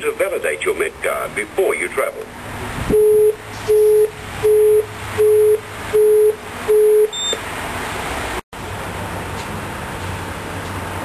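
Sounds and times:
steady background noise: 0.0s - 11.0s
intercom short low beeps: 2.9s - 7.4s.

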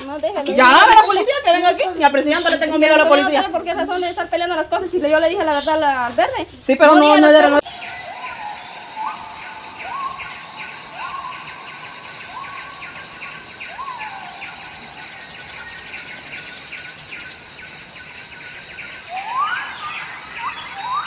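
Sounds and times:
insects chirping: 0.0s - 21.0s
high insect whine: 7.6s - 21.0s.

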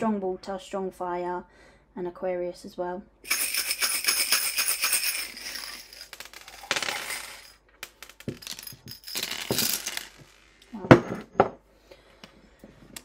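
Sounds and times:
metal charms jingling: 3.3s - 7.6s
charms clattering on cards: 3.3s - 10.6s.

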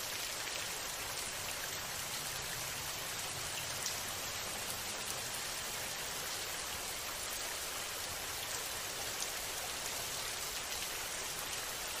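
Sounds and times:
steady rain hiss: 0.0s - 12.0s.

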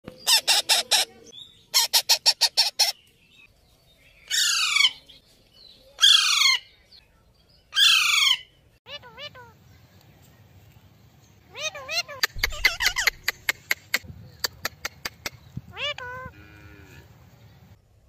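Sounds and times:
parakeets calling harshly: 0.2s - 3.0s, 4.3s - 5.0s, 6.0s - 6.7s, 7.8s - 9.6s, 11.5s - 13.3s, 15.7s - 16.3s.

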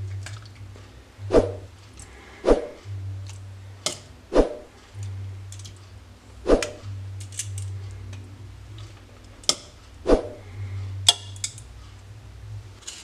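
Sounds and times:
low steady hum: 0.0s - 13.0s
metal tongs clicking: 11.1s - 11.7s.

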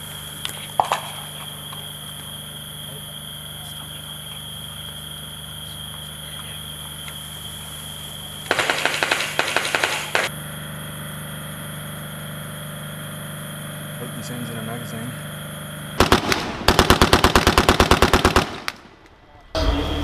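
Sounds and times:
faint high whine: 0.0s - 17.2s
automatic gunfire: 8.5s - 10.3s, 16.0s - 19.0s.

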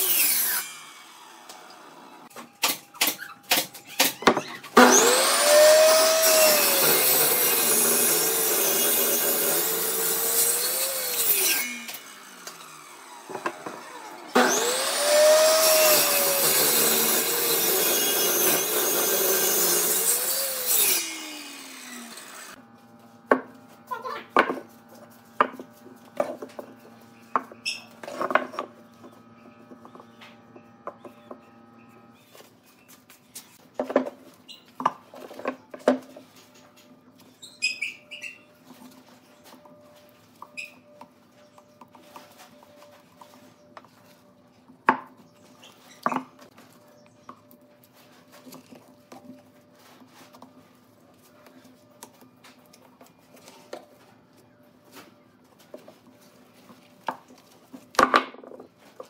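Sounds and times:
table saw cutting wood: 0.0s - 22.7s.

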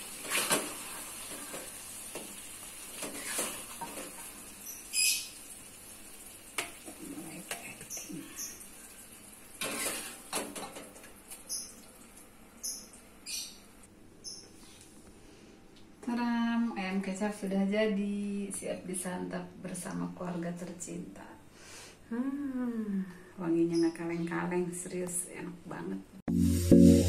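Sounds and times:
metal spatula scraping wok: 0.2s - 1.6s, 2.9s - 4.2s, 9.6s - 10.2s.

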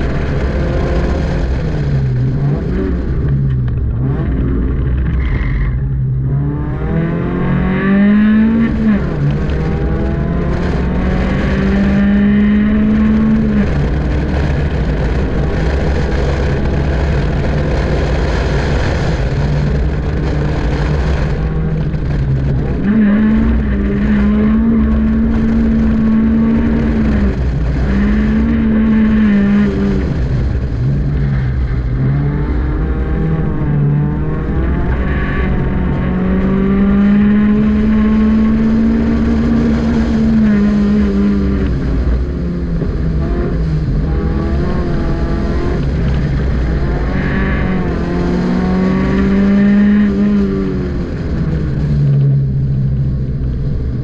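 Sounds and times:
car engine revving hard: 0.0s - 53.0s.

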